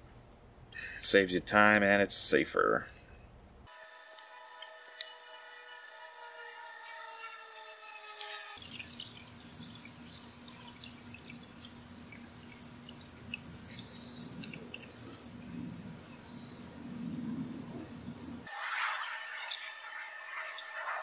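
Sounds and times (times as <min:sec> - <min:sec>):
water dripping in a bucket: 0:06.2 - 0:16.7
wet clicks and squelches: 0:08.6 - 0:15.7.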